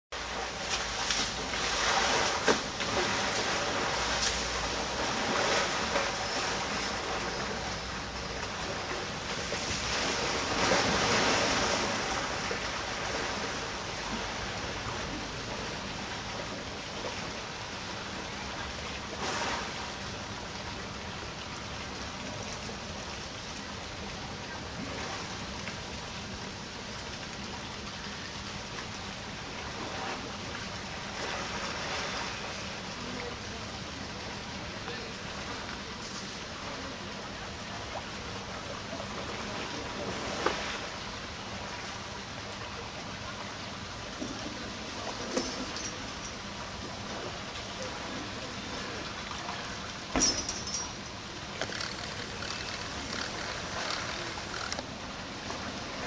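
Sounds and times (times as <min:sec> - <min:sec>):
water splashing and sloshing: 0:00.1 - 0:56.0
trunk spraying water: 0:51.6 - 0:54.8.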